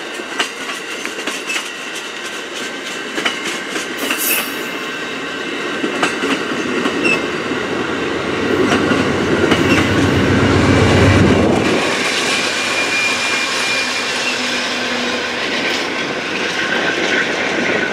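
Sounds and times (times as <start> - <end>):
train wheels clicking over rail joints: 0.0 - 4.9, 8.5 - 10.4
diesel locomotive engine rumble: 0.0 - 17.9
light rail noise: 0.0 - 17.9.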